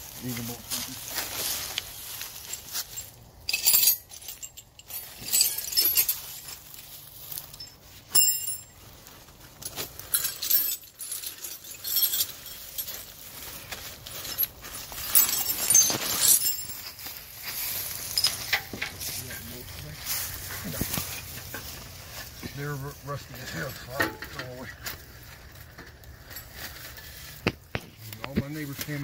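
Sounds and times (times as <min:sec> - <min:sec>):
metal tools clinking: 0:00.2 - 0:27.4
ringing metal clink: 0:02.4 - 0:06.6, 0:07.4 - 0:08.8, 0:14.2 - 0:17.0, 0:18.0 - 0:19.1.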